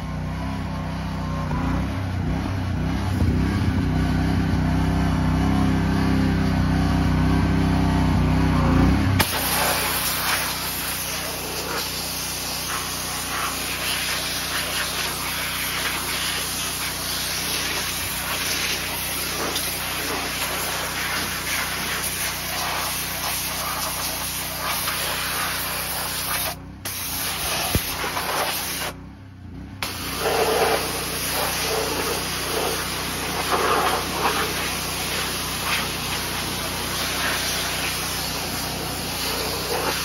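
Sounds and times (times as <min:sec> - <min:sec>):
loud low motor drone: 0:00.0 - 0:23.2, 0:26.6 - 0:40.0
pressure washer spraying metal: 0:09.2 - 0:29.0, 0:29.8 - 0:40.0.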